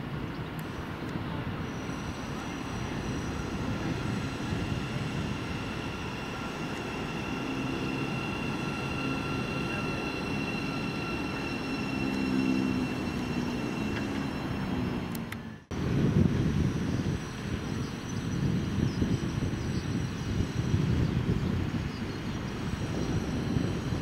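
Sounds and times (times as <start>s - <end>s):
train rumbling: 0.0s - 24.0s
high whining tones: 1.5s - 15.7s.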